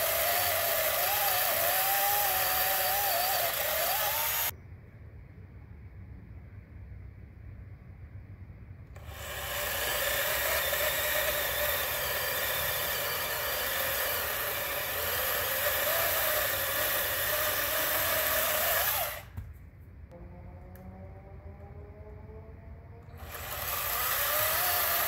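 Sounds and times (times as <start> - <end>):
electric chainsaw cutting branch: 0.0 - 4.5, 9.0 - 19.4, 23.1 - 25.0.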